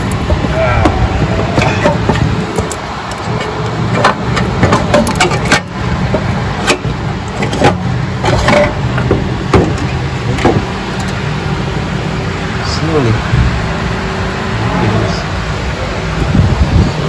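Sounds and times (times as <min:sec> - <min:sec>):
sharp clicks and knocks: 0:00.0 - 0:11.2
low machine hum: 0:00.0 - 0:17.0.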